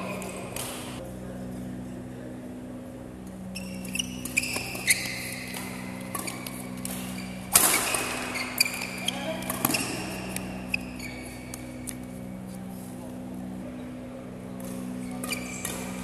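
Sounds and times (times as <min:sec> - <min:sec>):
steady low hum: 0:00.0 - 0:16.0
rackets smacking shuttlecock: 0:00.1 - 0:01.0, 0:04.2 - 0:12.2
shoes squeaking on floor: 0:03.6 - 0:11.8.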